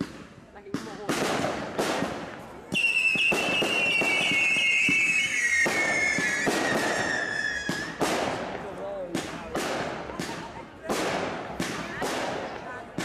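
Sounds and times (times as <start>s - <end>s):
firework bangs: 0.0s - 13.0s
whistling firework falling in pitch: 2.7s - 8.0s.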